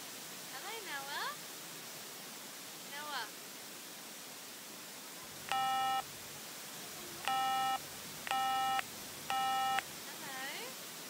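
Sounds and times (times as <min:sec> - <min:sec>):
short electronic beeps: 0:05.5 - 0:06.1, 0:07.2 - 0:09.9.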